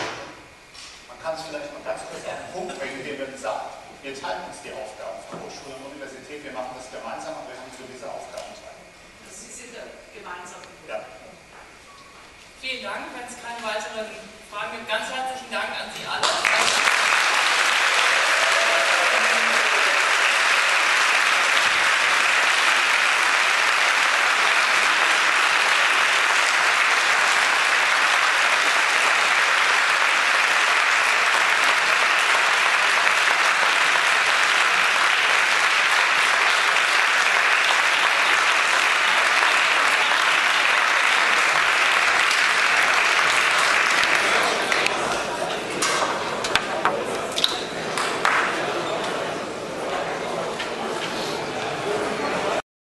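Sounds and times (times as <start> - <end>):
audience applauding: 16.2 - 45.6, 47.9 - 48.9.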